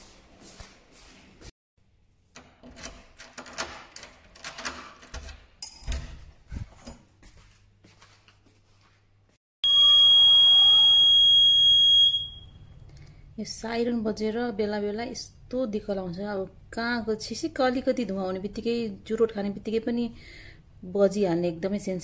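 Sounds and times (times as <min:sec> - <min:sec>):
key turning in door lock: 0:02.4 - 0:06.3
high steady electronic tone: 0:09.6 - 0:12.4.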